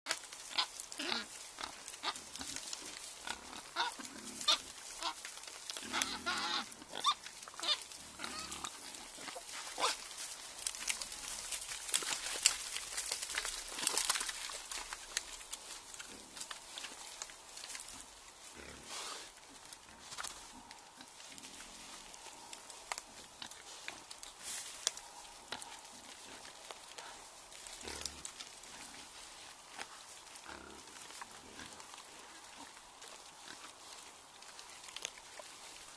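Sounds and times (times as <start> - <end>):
boar rooting and chewing: 0.1 - 35.9
wild boar grunting and squealing: 0.4 - 17.2.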